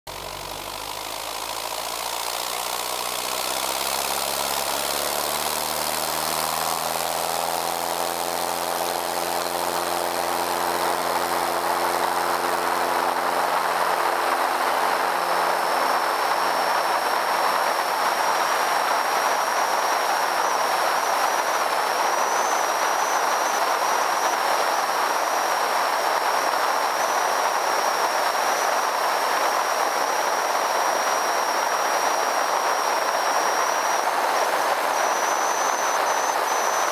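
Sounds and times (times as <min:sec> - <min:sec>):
aircraft engine and propeller: 0:00.1 - 0:36.9
thin high whistle: 0:30.8 - 0:36.9.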